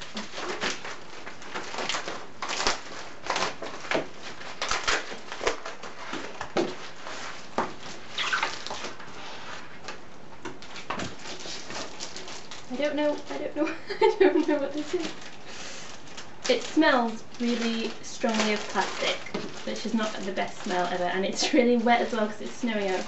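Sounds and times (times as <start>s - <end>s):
plastic envelope crinkling: 0.0s - 23.0s.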